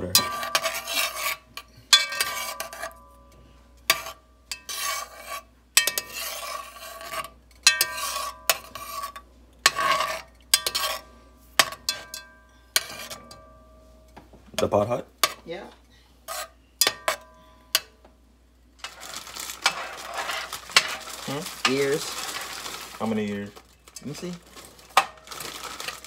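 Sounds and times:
metal spoon scraping metal pot: 0:00.0 - 0:03.0, 0:03.8 - 0:13.4, 0:16.3 - 0:17.8, 0:18.8 - 0:22.6.

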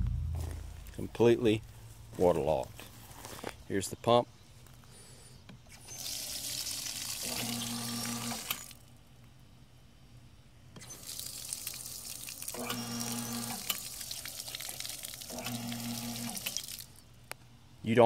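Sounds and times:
pump motor humming: 0:05.7 - 0:08.8, 0:10.8 - 0:17.0
water pouring from spigot: 0:05.9 - 0:08.8, 0:10.9 - 0:17.0.

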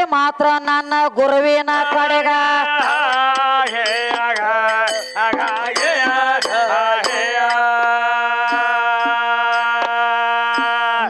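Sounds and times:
people singing folk song: 0:00.7 - 0:11.0
frame drum strikes: 0:02.7 - 0:10.0
hand cymbal strikes: 0:02.7 - 0:11.0.

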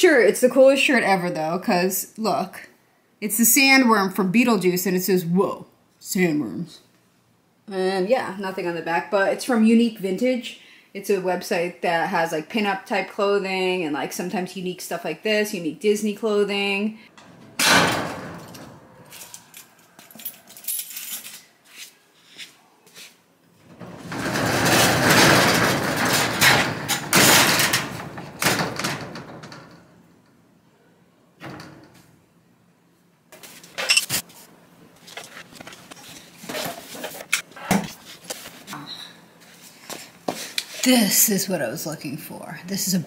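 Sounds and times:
metal roll-up door rattling: 0:17.2 - 0:19.4, 0:23.7 - 0:29.9
boxes knocking and clattering: 0:23.8 - 0:29.7.

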